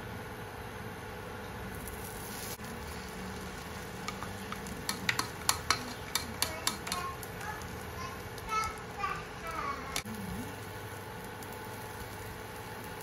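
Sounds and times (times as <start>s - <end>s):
egg frying sizzle: 1.6s - 13.0s
utensils clicking against pan: 3.6s - 7.8s.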